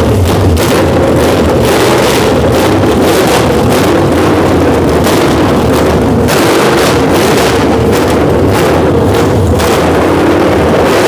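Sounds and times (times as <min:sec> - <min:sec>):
engine running without exhaust: 0:00.0 - 0:11.0.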